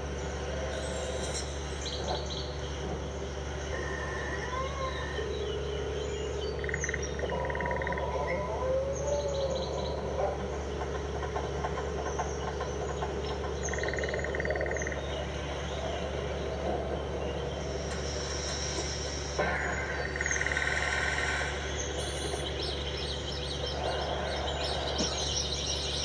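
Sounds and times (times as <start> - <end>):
low hum: 0.0 - 26.0.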